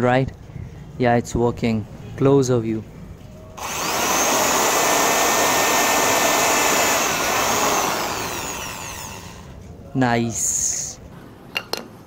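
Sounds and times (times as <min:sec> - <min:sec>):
electric drill boring wood: 0:03.6 - 0:09.6.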